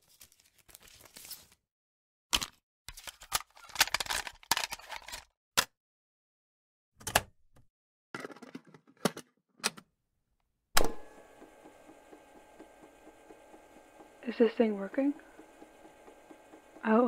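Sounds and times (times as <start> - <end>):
cassette tape rattling and clicking: 10.8 - 16.9.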